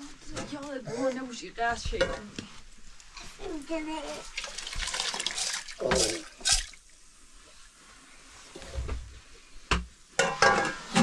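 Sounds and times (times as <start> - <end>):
grain pouring into water: 4.2 - 6.8.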